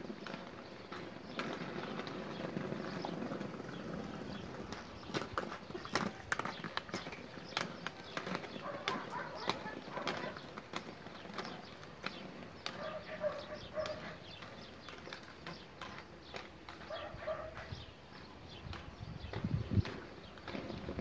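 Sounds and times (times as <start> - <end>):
inline skate wheels on paving: 0.0 - 21.0.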